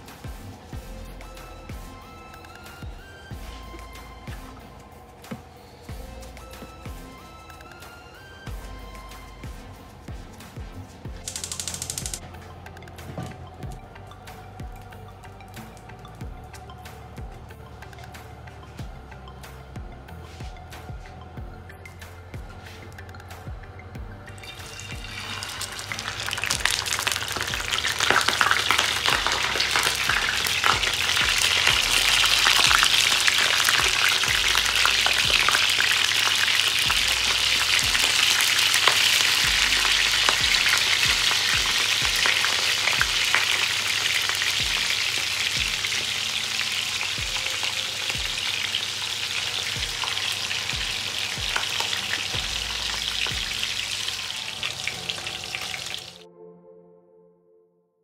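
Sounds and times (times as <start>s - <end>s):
fish sizzling in hot oil: 24.4s - 56.2s.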